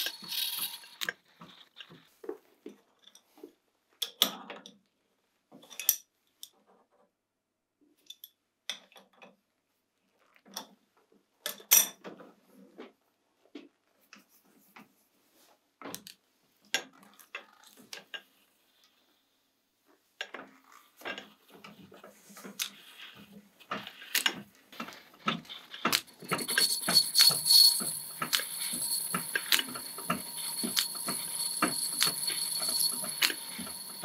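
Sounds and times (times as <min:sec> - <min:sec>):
lathe whining and scraping: 0:00.0 - 0:01.1, 0:26.0 - 0:34.0.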